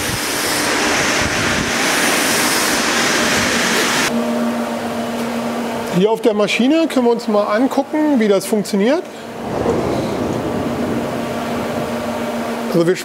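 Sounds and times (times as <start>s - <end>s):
loud rushing noise: 0.0s - 4.1s, 9.3s - 13.0s
machine shop hum: 0.0s - 13.0s.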